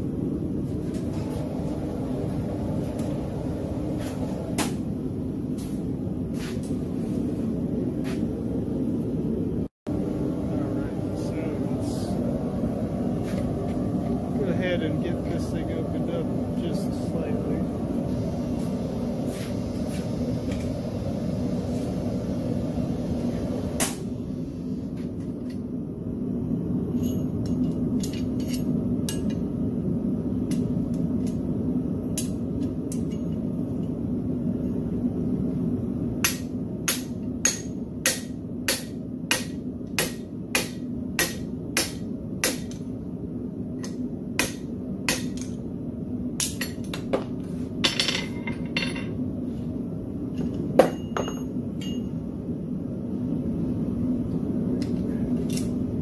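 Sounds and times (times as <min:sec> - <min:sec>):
hammer striking steel on anvil: 0:36.2 - 0:42.8, 0:43.8 - 0:45.6, 0:46.4 - 0:47.2, 0:50.8 - 0:52.1.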